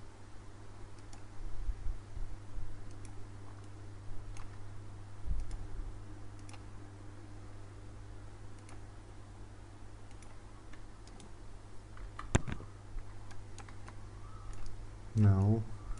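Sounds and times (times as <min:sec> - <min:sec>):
steady low hum: 0:00.0 - 0:15.9
computer mouse clicking: 0:00.9 - 0:01.3, 0:02.9 - 0:04.6, 0:05.4 - 0:05.6, 0:06.4 - 0:06.7, 0:08.6 - 0:08.8, 0:10.1 - 0:11.4, 0:12.0 - 0:14.8.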